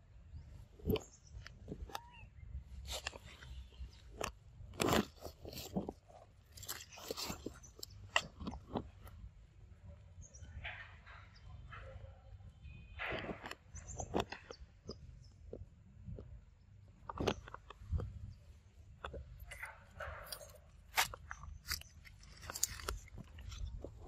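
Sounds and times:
dry leaves and twigs crunching: 0:02.8 - 0:09.0, 0:19.0 - 0:24.0.

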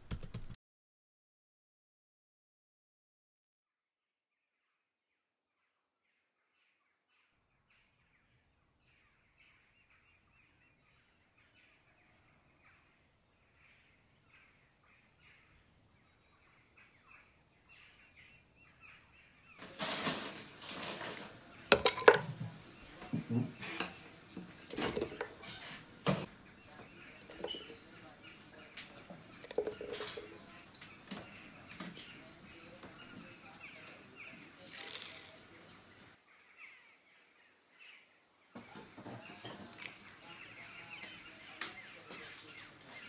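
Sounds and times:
onion pieces clattering into pot: 0:19.7 - 0:22.5, 0:24.6 - 0:26.2, 0:27.2 - 0:27.9, 0:29.4 - 0:30.4.

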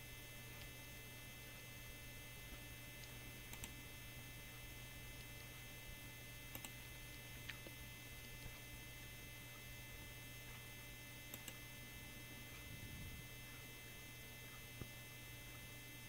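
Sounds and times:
faint electrical hum: 0:00.0 - 0:16.0
computer mouse clicks: 0:03.0 - 0:03.8, 0:06.5 - 0:06.8, 0:11.3 - 0:11.6.

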